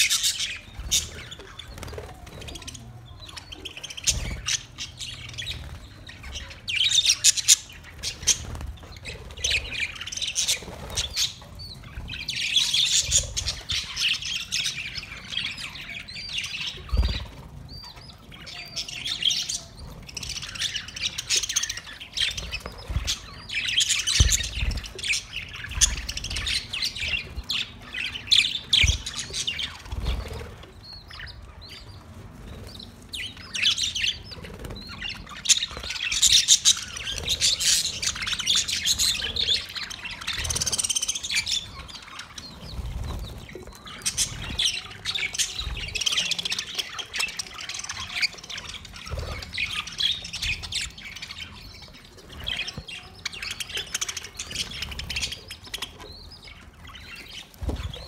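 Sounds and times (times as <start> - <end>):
budgerigars chattering: 32.6 - 58.0.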